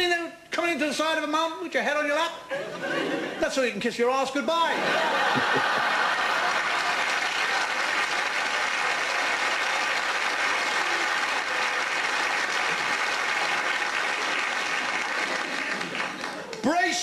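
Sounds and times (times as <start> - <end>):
audience applauding: 5.3 - 16.8.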